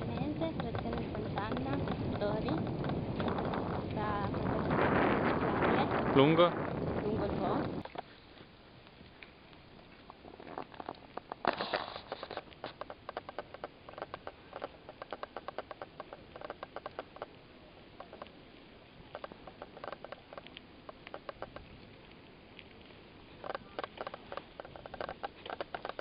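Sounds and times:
bicycle freewheel ticking: 0:00.0 - 0:05.7, 0:12.8 - 0:17.3
light rattling: 0:00.0 - 0:06.4, 0:23.3 - 0:26.0.

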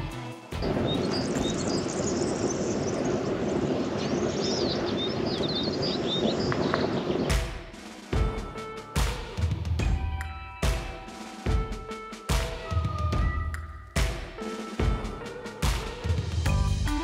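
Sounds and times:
small birds chirping: 0:00.6 - 0:07.4.

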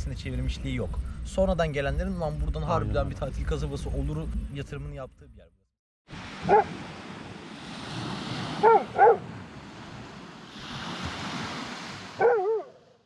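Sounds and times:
sea surf: 0:06.1 - 0:12.7
dog barking: 0:06.4 - 0:06.8, 0:08.6 - 0:09.3, 0:12.2 - 0:12.9.

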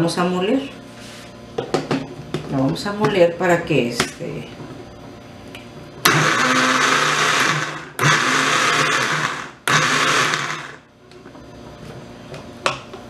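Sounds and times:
blender pulsing: 0:06.0 - 0:10.9.

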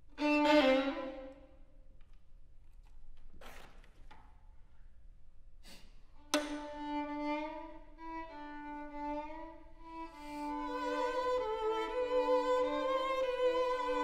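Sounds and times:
two violins playing: 0:00.0 - 0:01.6, 0:06.2 - 0:14.0.

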